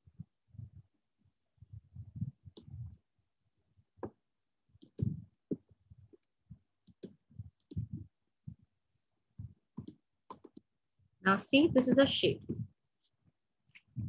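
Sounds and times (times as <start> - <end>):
soft low thumps: 0.1 - 0.9, 1.6 - 3.0, 4.8 - 8.7, 9.3 - 10.0, 11.5 - 12.8.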